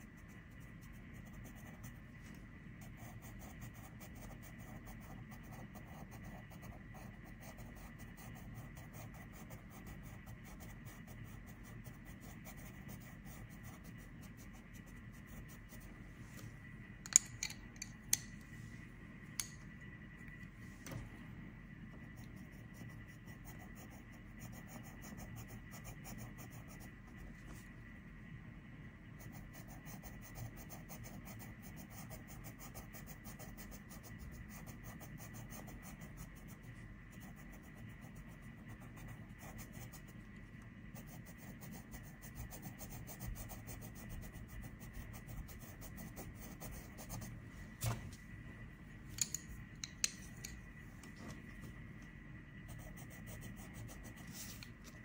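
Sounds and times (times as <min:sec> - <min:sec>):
pencil scratching on paper: 0:00.0 - 0:02.2, 0:02.8 - 0:15.9, 0:22.0 - 0:27.3, 0:29.2 - 0:40.2, 0:40.9 - 0:47.4, 0:52.6 - 0:55.0
pencil clicks: 0:49.2 - 0:50.6.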